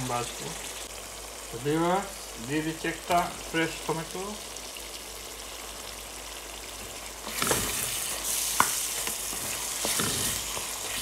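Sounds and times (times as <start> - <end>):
masala sizzling in a pan: 0.0 - 11.0.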